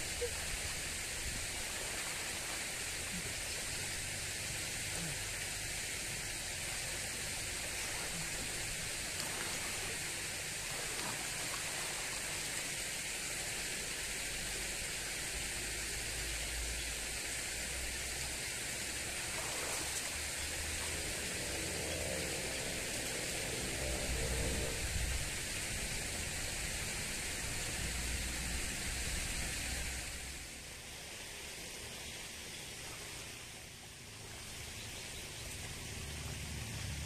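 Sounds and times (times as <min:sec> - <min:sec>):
water rushing in a channel: 0:00.0 - 0:37.0
person splashing in water: 0:07.8 - 0:12.4.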